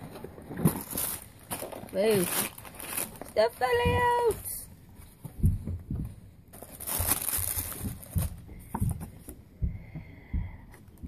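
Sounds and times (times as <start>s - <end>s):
tissue paper rustling: 0.6s - 5.2s, 6.5s - 9.2s
soft knocks of items handled: 5.0s - 6.3s, 7.8s - 10.9s.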